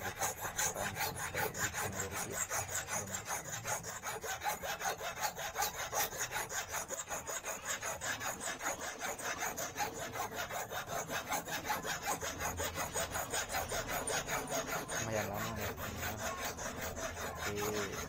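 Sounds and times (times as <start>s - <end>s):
hand file rasping on wire: 0.0s - 18.0s.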